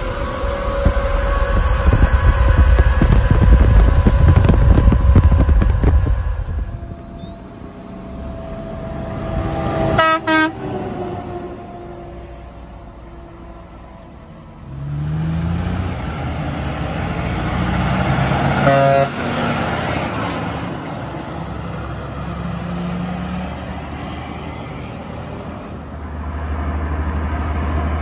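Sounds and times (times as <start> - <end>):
truck diesel engine accelerating: 0.0 - 28.0
truck air horn blast: 9.0 - 12.1, 18.5 - 19.3.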